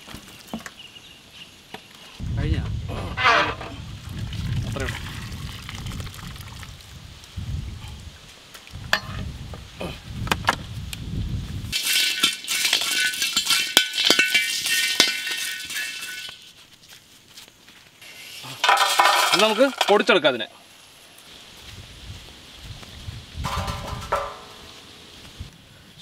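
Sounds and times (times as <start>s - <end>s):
spices rattling in dry wok: 11.7s - 16.6s, 18.0s - 20.2s
metal spatula stirring: 11.8s - 16.5s
steel clinking on steel tray: 11.8s - 16.5s, 18.6s - 20.1s.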